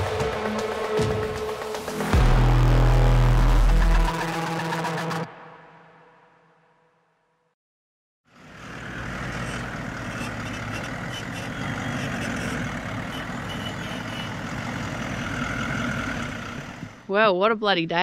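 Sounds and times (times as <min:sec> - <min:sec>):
car engine idling: 0:08.4 - 0:17.1.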